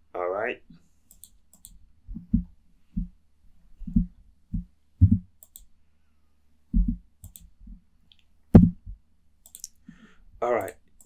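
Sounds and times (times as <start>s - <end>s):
keyboard and mouse clicks: 1.1s - 1.8s, 5.4s - 5.7s, 7.2s - 7.5s, 9.4s - 9.8s.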